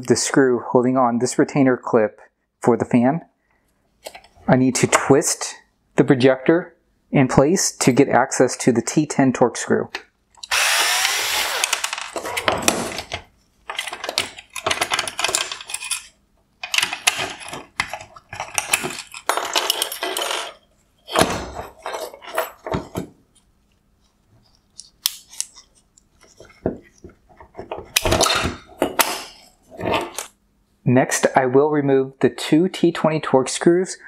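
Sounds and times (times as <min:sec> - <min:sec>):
plastic and metal parts clattering: 0:11.6 - 0:23.2, 0:24.7 - 0:30.3.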